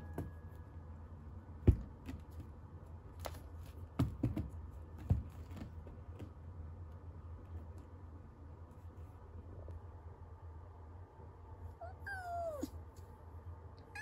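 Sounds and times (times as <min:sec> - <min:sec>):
kitten paws thumping and tapping: 0:01.7 - 0:06.5.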